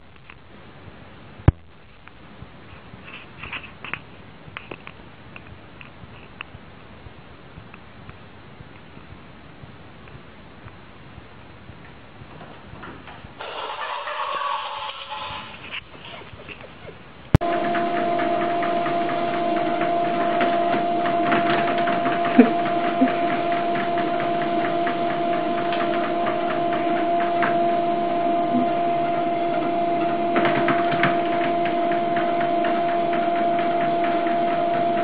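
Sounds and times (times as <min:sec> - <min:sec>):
treadmill motor hum: 0:17.3 - 0:35.0
treadmill belt ticking: 0:17.4 - 0:35.0.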